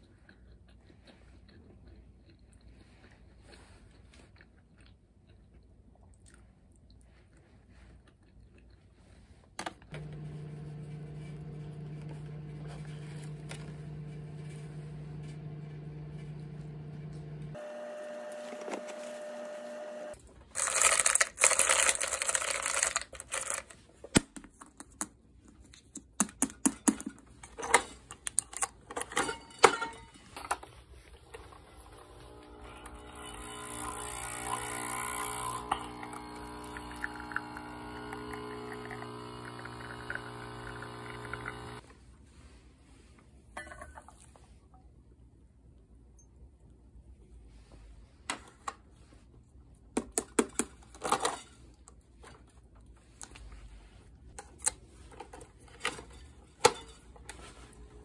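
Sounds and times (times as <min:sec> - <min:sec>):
machine humming: 0:09.9 - 0:20.2, 0:31.8 - 0:41.8.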